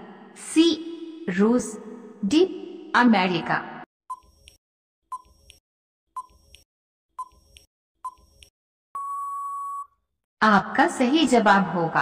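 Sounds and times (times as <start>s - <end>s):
steady timer beep: 4.1s - 5.6s, 6.2s - 9.9s
timer ticking beeps: 4.1s - 5.6s, 6.2s - 6.6s, 7.2s - 9.9s.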